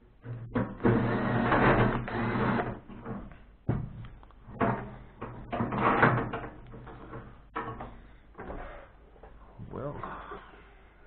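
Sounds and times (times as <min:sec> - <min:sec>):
loose parts knocking and clattering: 0:02.8 - 0:08.5.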